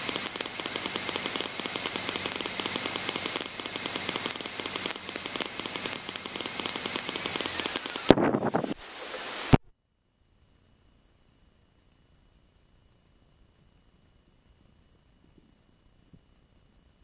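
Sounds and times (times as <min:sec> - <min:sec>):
propeller plane engine idling: 0:00.0 - 0:08.2
steady hiss: 0:00.0 - 0:17.0.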